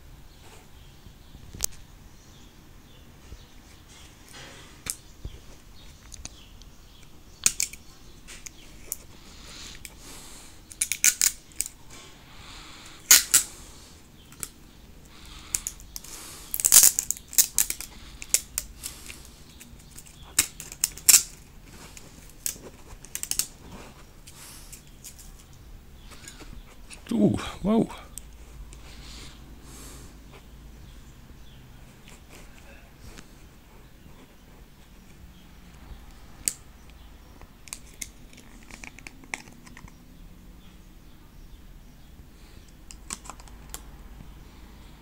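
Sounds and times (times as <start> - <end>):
plastic packaging clicks and crackles: 10.6 - 11.8, 15.5 - 23.6, 37.5 - 39.9, 42.8 - 43.9.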